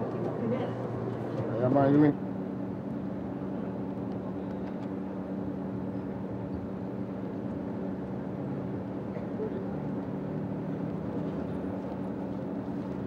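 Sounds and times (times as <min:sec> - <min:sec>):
low mechanical drone: 0:00.0 - 0:13.0.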